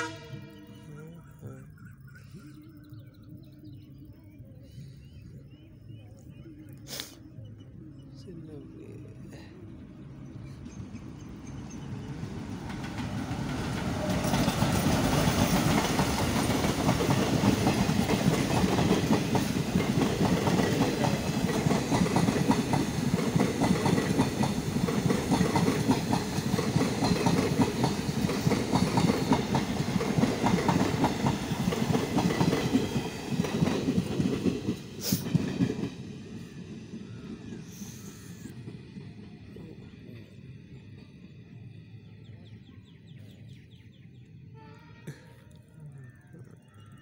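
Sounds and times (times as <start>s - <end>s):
train passing at speed: 0.0s - 46.8s
wheels clacking over rail joints: 11.5s - 36.1s.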